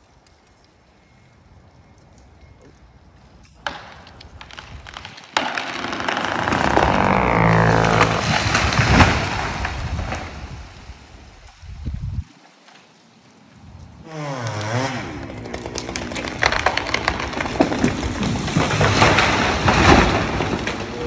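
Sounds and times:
tree trunk cracking: 3.4 - 12.1, 14.0 - 21.0
branches rushing and crashing down: 3.6 - 13.0, 14.0 - 21.0.

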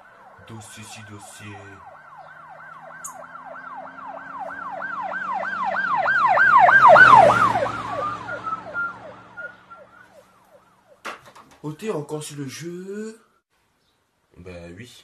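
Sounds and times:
rush of vehicle noise: 0.0 - 10.9
emergency vehicle siren passing: 0.0 - 11.1.

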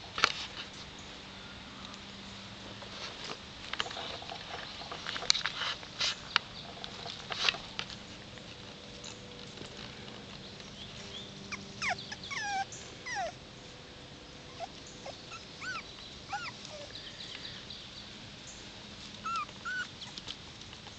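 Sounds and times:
puppies whimpering: 11.5 - 13.4, 14.5 - 17.1, 19.2 - 20.3.

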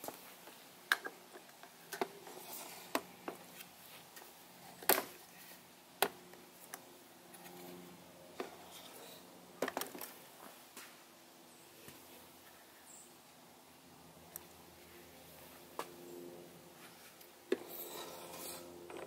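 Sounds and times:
fan humming: 13.2 - 19.0.

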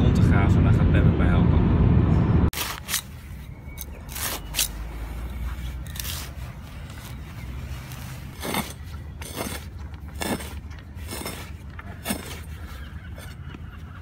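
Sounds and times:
blade scraping through turf: 2.5 - 13.4.

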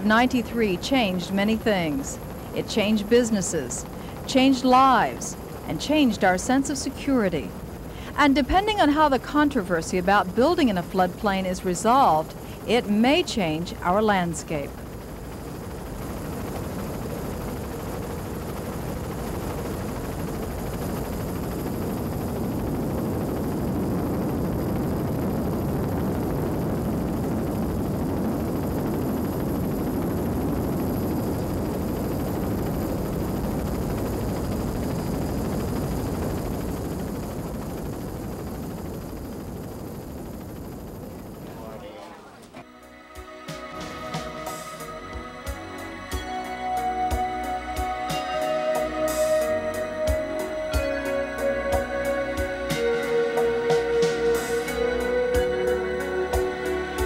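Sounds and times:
rushing roaring noise: 0.0 - 42.0.

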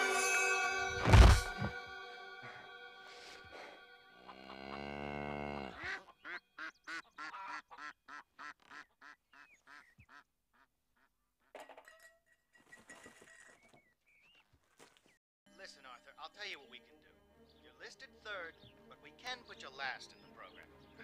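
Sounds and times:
faint farmyard animal calls: 3.2 - 11.6
ducks quacking: 3.5 - 11.2
cow mooing: 3.6 - 6.0.

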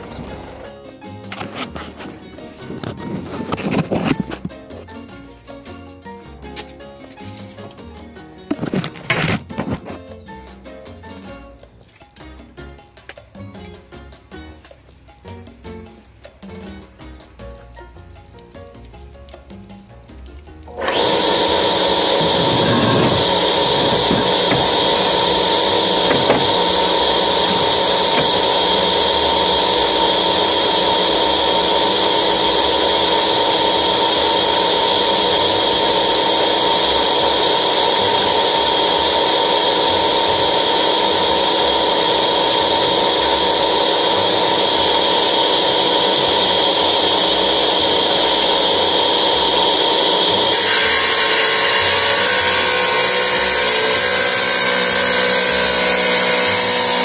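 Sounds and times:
tile saw motor whine: 0.0 - 4.5, 20.7 - 57.0
saw blade grinding tile: 0.0 - 4.7, 20.8 - 36.2, 50.5 - 57.0.

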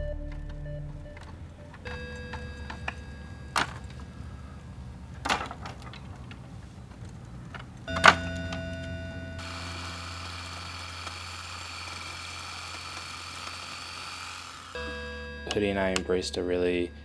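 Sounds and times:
wooden planks knocking together: 0.9 - 8.6.

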